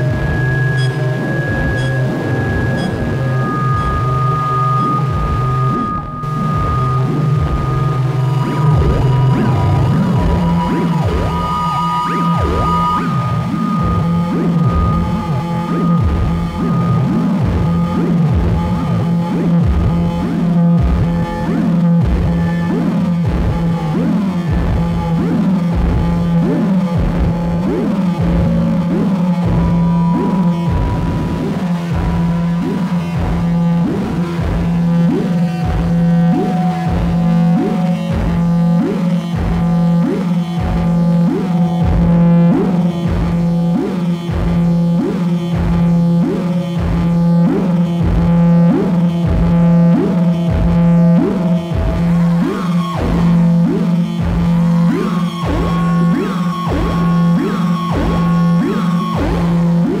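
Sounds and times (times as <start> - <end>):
thin held synth tones: 0.0 - 17.1
higher held synth tone: 0.0 - 18.4
low synthesizer drone: 0.0 - 60.0.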